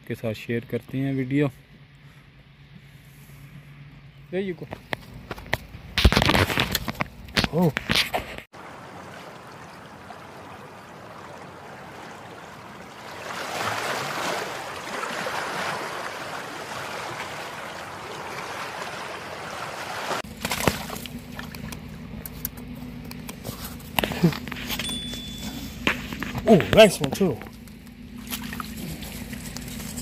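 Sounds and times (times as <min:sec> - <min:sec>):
fish splashing in water: 0:08.6 - 0:21.9, 0:28.1 - 0:30.0.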